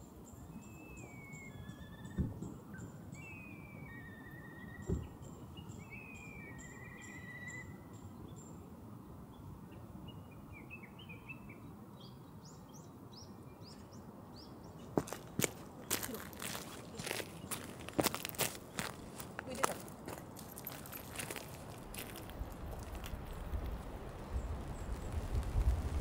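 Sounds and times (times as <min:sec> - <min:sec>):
low outdoor ambience: 0:00.0 - 0:26.0
birds whistling and chirping: 0:00.4 - 0:08.5.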